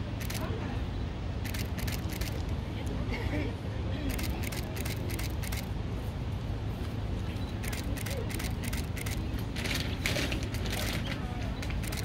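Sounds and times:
steady low hum: 0.0 - 12.0
camera shutter clicking: 0.2 - 0.4, 1.4 - 2.5, 4.1 - 5.7, 7.6 - 9.3, 11.8 - 12.0
faint background voices: 7.0 - 12.0.

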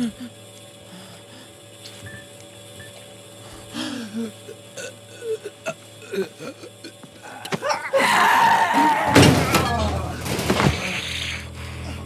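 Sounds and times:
woman gulping and grunting: 4.2 - 8.0
woman shrieking: 7.3 - 10.1.

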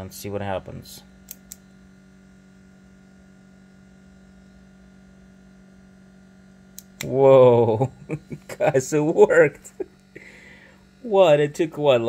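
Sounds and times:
low electrical hum: 0.0 - 12.0
power switch clicks: 1.2 - 1.6, 6.7 - 7.2.

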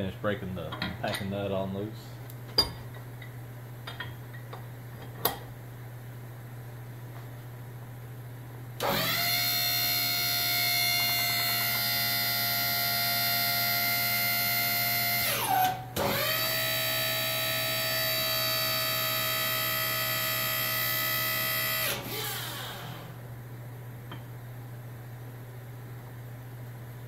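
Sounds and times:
pump motor whining: 8.8 - 23.2.

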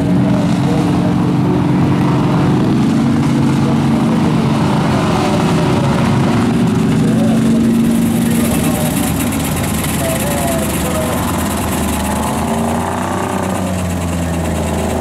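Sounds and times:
truck engines running hard: 0.0 - 15.0.

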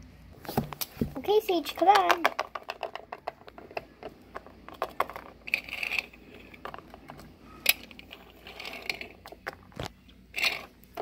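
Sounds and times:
plastic toys clicking on wood: 1.7 - 8.1.

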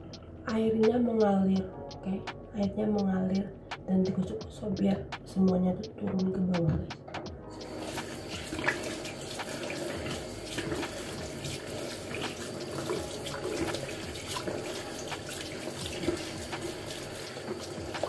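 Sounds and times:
tap running in steady stream: 7.5 - 18.0
water splashing on face: 7.6 - 18.0.

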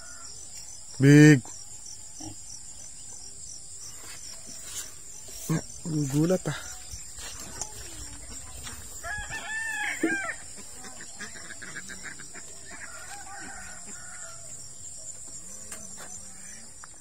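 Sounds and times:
crickets droning: 0.0 - 17.0
rooster crowing: 9.0 - 10.4, 12.7 - 14.6.

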